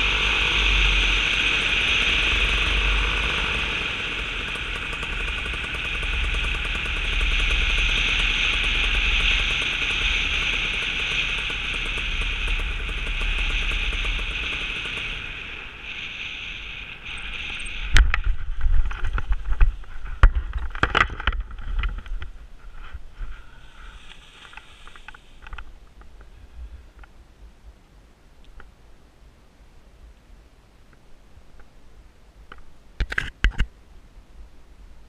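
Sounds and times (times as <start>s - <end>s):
engine noise: 0.0s - 27.1s.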